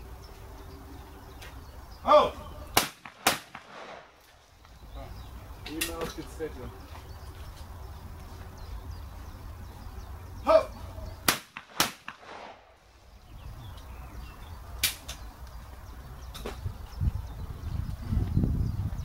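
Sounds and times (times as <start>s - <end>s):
person shouting: 2.0s - 2.5s, 10.4s - 10.8s
shotgun shots: 2.7s - 4.2s, 11.2s - 12.8s.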